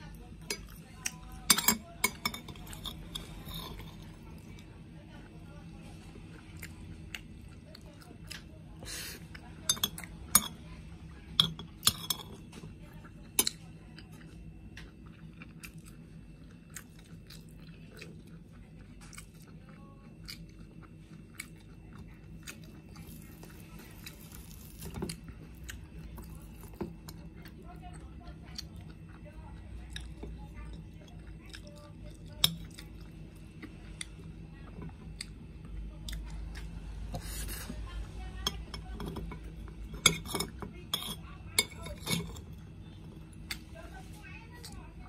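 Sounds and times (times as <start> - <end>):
steady low hum: 0.0 - 45.0
person chewing food: 6.1 - 10.2, 11.8 - 37.8, 38.4 - 43.7.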